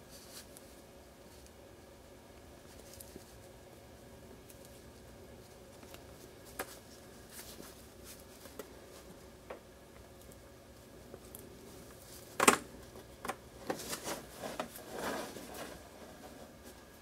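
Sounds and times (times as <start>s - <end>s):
soft rustles: 0.0s - 1.6s, 2.5s - 3.6s, 4.4s - 9.3s, 13.6s - 17.0s.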